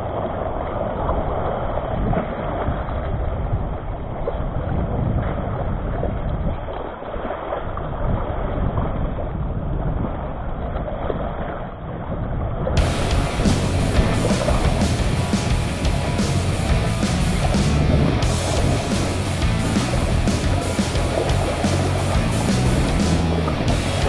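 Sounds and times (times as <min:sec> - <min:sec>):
wind buffeting microphone: 0:00.0 - 0:24.0
waves washing against rocks: 0:12.8 - 0:24.0.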